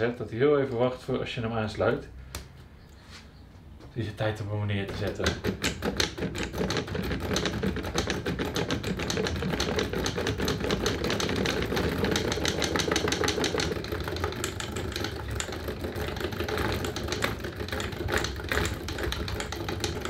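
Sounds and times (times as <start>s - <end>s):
solenoid engine clacking: 4.8s - 20.0s.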